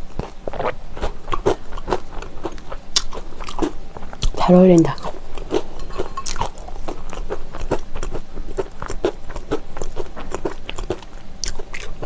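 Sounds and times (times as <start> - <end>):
crunching pretzel: 5.0 - 12.0.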